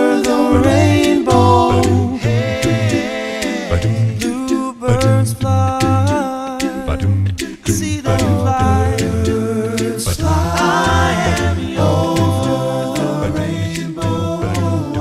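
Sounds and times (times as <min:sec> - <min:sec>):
a cappella singing in harmony: 0:00.0 - 0:15.0
sung bass line: 0:00.4 - 0:03.1, 0:03.7 - 0:15.0.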